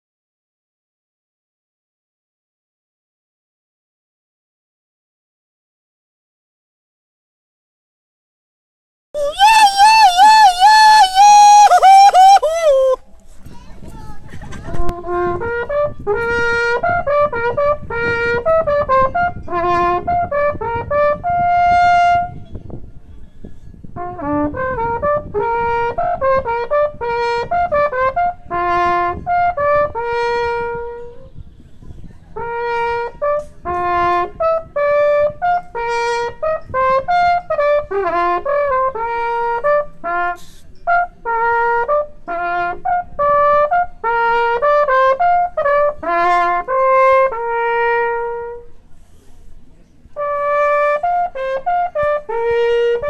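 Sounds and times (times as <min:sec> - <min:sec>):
wooden horn playing lively tune: 0:09.2 - 0:13.0, 0:14.9 - 0:22.4, 0:24.0 - 0:31.2, 0:32.4 - 0:48.8, 0:50.2 - 0:53.0.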